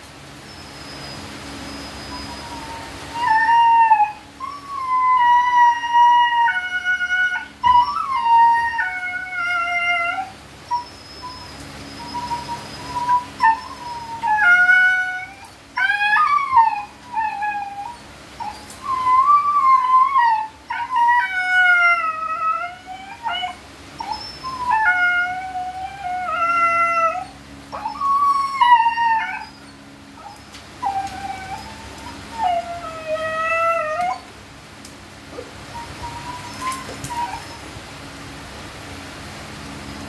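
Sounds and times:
dog whine-howls: 1.8 - 34.4, 35.3 - 37.7.

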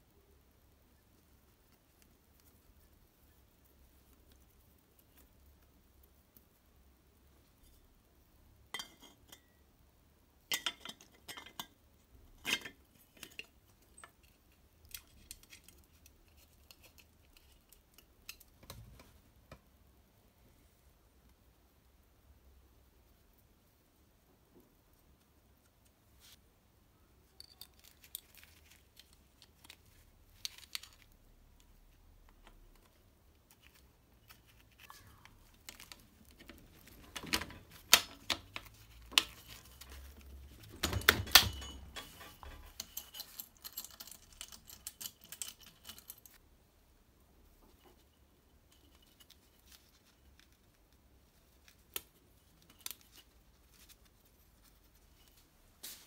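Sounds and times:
metal parts and tools clinking: 27.3 - 31.2, 32.8 - 46.4.

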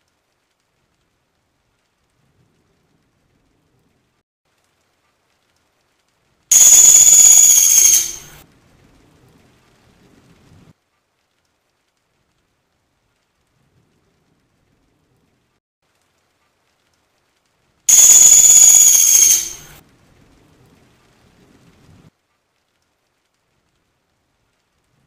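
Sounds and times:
woodpecker rattling trill: 6.5 - 8.4, 17.9 - 19.8.

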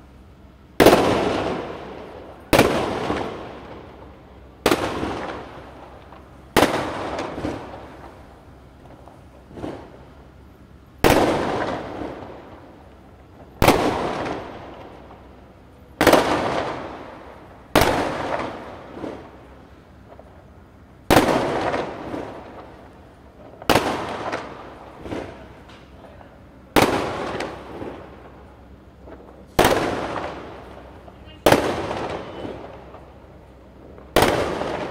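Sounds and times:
firework shells bursting: 0.8 - 10.2, 11.0 - 15.3, 21.0 - 34.9
firework pops and crackles: 0.8 - 34.9.

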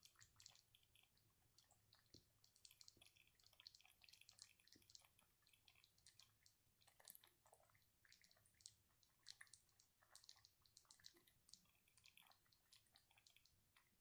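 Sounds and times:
faint clicks and ticks: 0.0 - 14.0.

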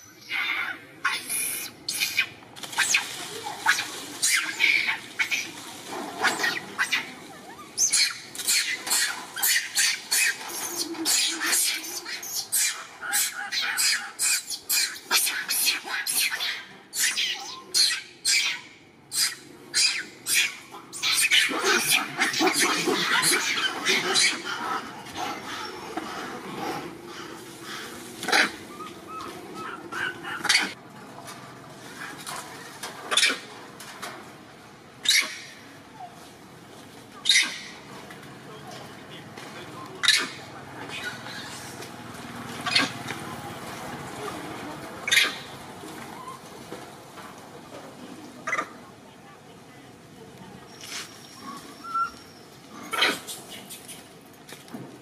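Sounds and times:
baby monkey distress cries: 6.2 - 24.6
faint high squeaks: 50.6 - 52.6.

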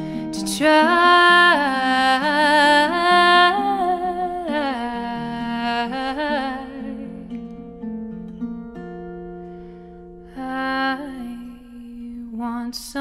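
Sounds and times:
acoustic guitar notes: 0.0 - 12.9
woman singing wordless phrase: 0.3 - 7.3, 10.4 - 13.0.

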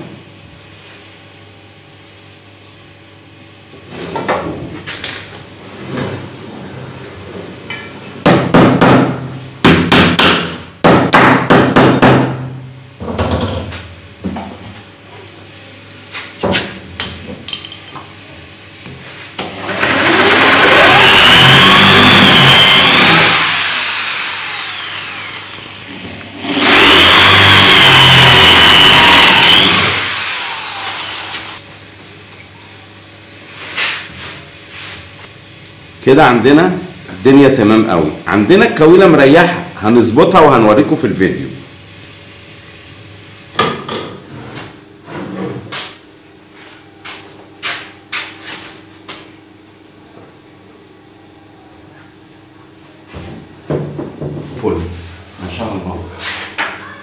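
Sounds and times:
sharp knocks on wood: 8.3 - 12.4
electric drill boring wood: 19.6 - 31.6.

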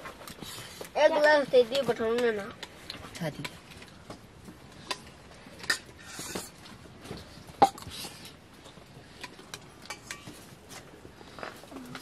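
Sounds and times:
spoons clinking on steel plates: 9.2 - 10.4.

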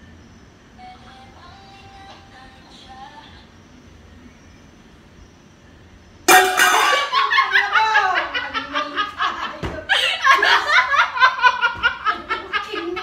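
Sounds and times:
women laughing hard: 6.9 - 13.0.

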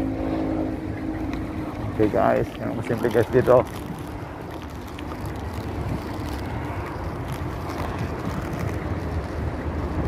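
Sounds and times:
bicycle road noise: 0.0 - 10.0
wind on microphone: 3.4 - 10.0.

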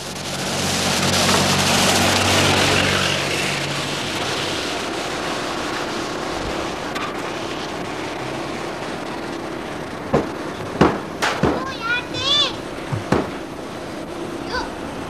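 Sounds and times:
wind on microphone: 0.0 - 11.2
vehicle engine passing: 0.0 - 15.0.

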